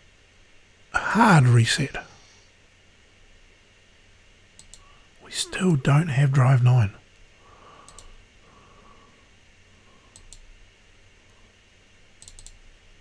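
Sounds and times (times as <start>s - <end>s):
computer mouse clicks: 4.6s - 4.8s, 7.8s - 8.2s, 10.1s - 10.5s, 12.2s - 12.6s.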